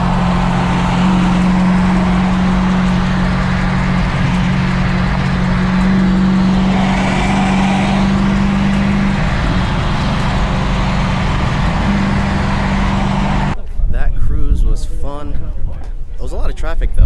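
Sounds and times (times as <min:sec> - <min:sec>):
car engine drone: 0:00.0 - 0:13.6
road noise: 0:00.0 - 0:13.6.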